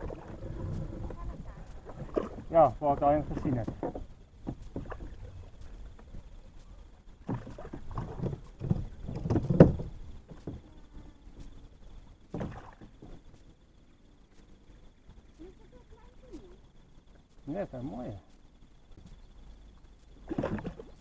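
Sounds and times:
bumps and scrapes on kayak hull: 0.0s - 6.3s, 7.1s - 10.8s.

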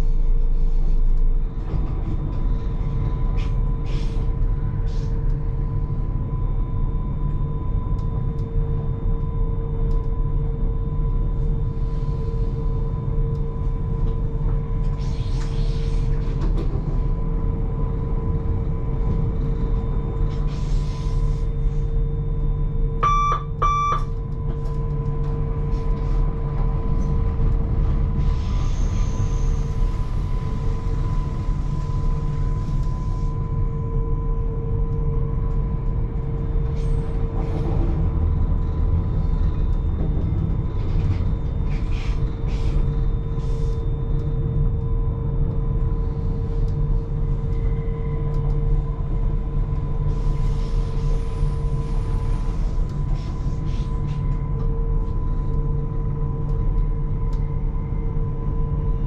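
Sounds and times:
train rumble: 0.0s - 8.8s, 11.1s - 22.0s, 23.5s - 59.0s
constant whine: 0.0s - 59.0s
short electronic beeps: 23.0s - 24.1s.

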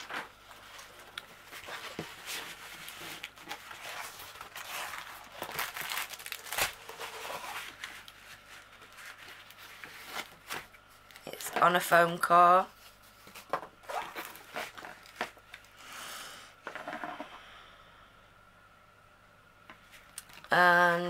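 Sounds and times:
canvas rustling and crinkling: 0.0s - 11.8s, 12.7s - 15.5s.

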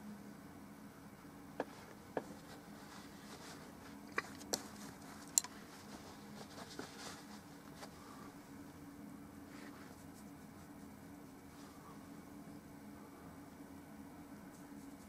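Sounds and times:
low steady hum: 0.0s - 15.0s
soft rubbing: 1.6s - 12.3s.

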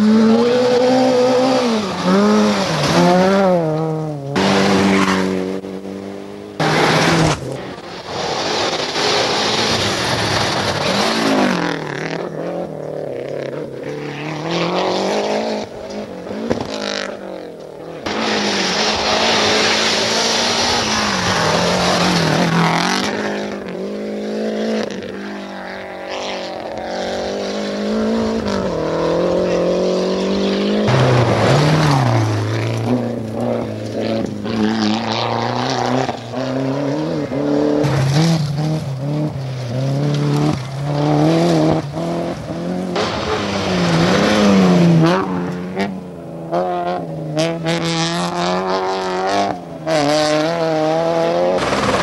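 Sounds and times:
rally car engines revving: 0.0s - 52.0s
tyres on gravel: 1.7s - 23.9s, 30.2s - 36.4s, 37.0s - 46.3s, 51.4s - 52.0s.

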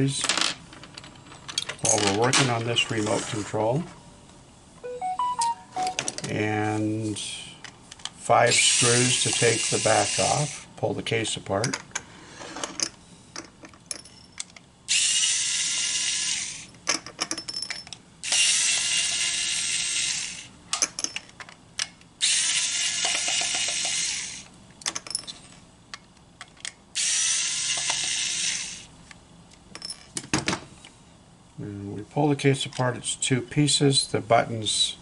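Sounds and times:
cordless screwdriver whirring: 18.3s - 20.5s, 22.2s - 24.4s.

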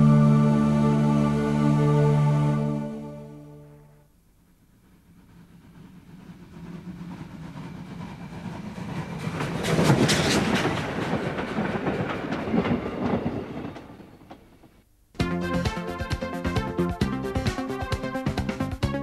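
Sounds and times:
train clattering on rails: 4.8s - 14.8s.

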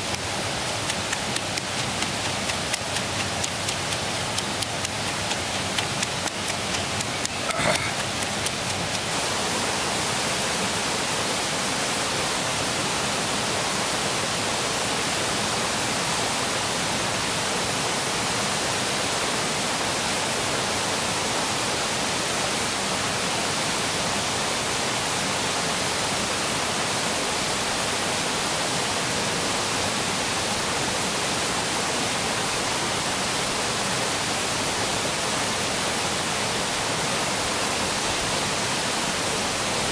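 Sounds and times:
river water rushing over rocks: 0.0s - 39.9s
wooden pestle pounding in mortar: 0.9s - 9.0s.

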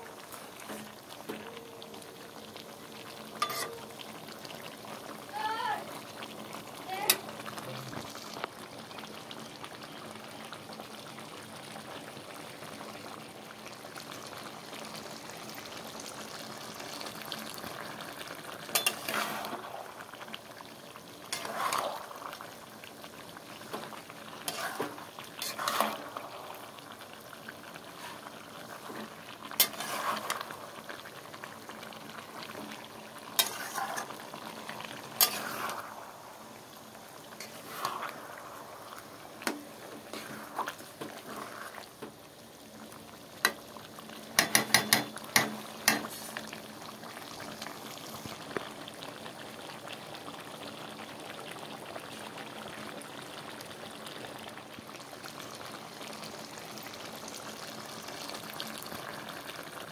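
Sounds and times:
curry sizzling in a steel pot: 0.0s - 59.9s
metal spatula scraping a pot: 3.4s - 3.8s, 18.7s - 19.6s, 21.3s - 22.0s, 24.4s - 26.2s, 28.9s - 30.5s, 33.4s - 34.2s, 35.2s - 35.8s.

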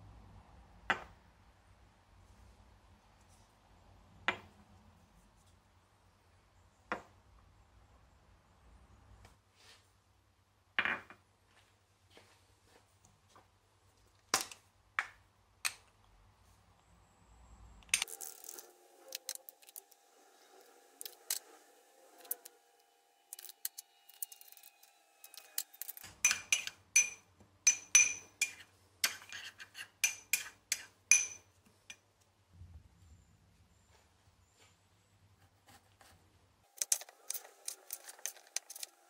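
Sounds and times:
teaspoon clinking against ceramic bowl: 26.2s - 29.4s, 30.0s - 31.4s.

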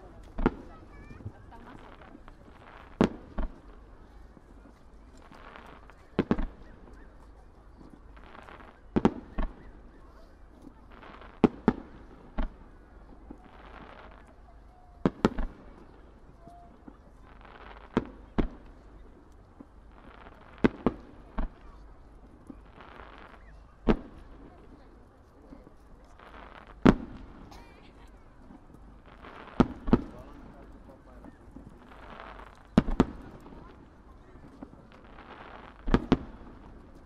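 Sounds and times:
firework bangs: 0.0s - 3.8s, 5.1s - 7.2s, 15.0s - 18.9s, 19.6s - 24.8s, 26.2s - 27.6s, 28.4s - 37.0s.

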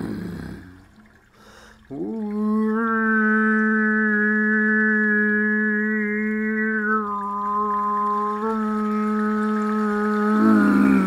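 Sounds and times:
person growling: 0.0s - 0.8s, 10.0s - 11.0s.

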